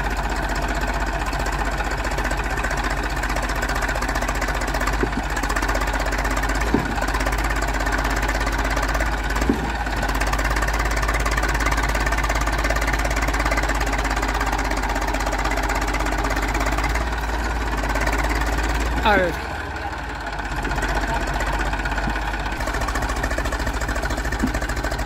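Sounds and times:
tractor diesel engine straining: 0.0s - 25.0s
sharp knocks: 4.8s - 5.4s, 6.4s - 7.5s, 9.2s - 10.1s.

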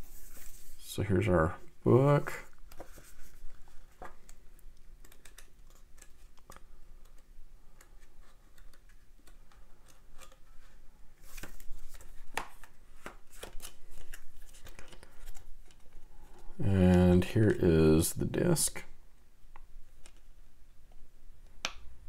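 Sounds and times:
paper pages rustling: 0.0s - 0.8s, 2.4s - 7.2s, 7.8s - 16.5s.

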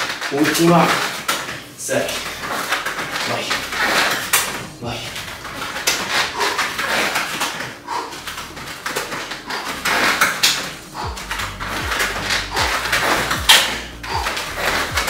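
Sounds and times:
person breathing hard: 5.5s - 15.0s.

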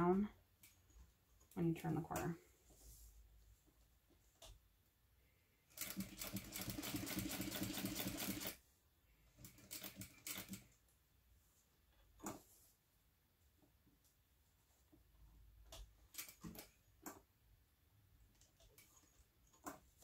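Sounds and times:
sewing machine stitching: 5.8s - 8.6s.

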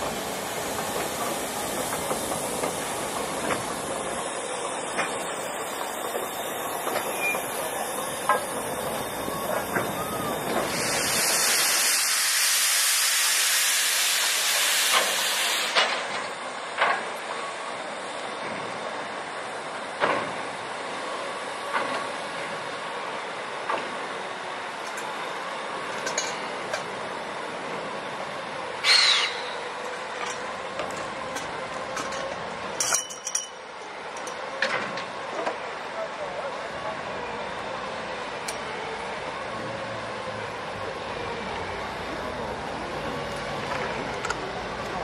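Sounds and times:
loud steam hiss: 0.0s - 31.2s
sharp metallic clinks: 32.8s - 33.7s.

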